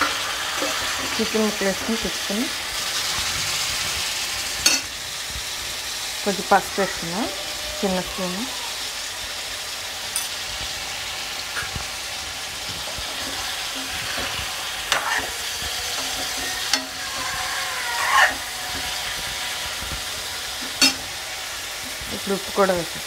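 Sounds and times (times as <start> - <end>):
metal spatula scraping pan: 0.0 - 2.1, 12.8 - 19.8, 20.4 - 21.2
chicken sizzling in hot oil: 0.0 - 23.0.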